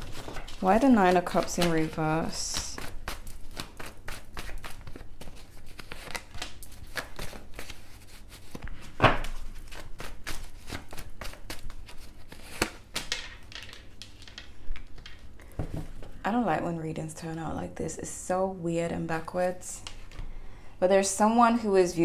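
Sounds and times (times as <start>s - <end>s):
cards being shuffled: 0.0s - 15.3s.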